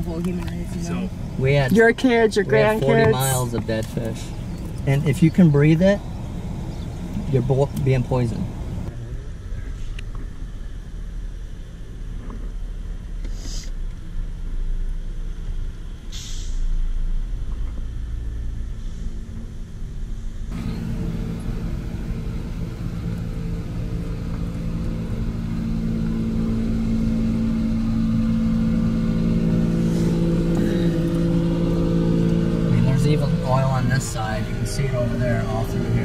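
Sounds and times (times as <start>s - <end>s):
diesel engine humming: 0.0s - 36.0s
vehicle rumble inside car: 0.0s - 36.0s
short hissy noises: 13.2s - 13.8s, 16.1s - 16.7s.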